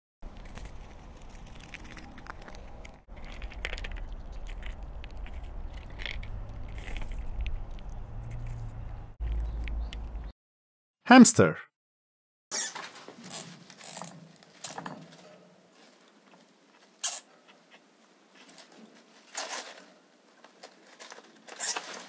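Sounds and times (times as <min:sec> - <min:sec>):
chipmunk chewing and crunching: 0:00.2 - 0:10.3.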